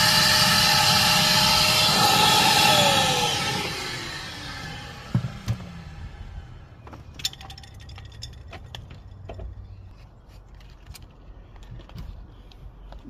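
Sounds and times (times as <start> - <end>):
small hard objects clinking: 7.1 - 9.6.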